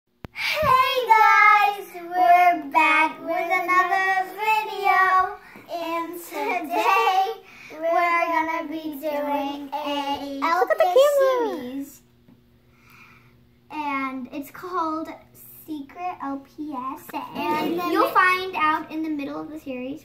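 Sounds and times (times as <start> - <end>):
girls singing unaccompanied: 0.5 - 10.5.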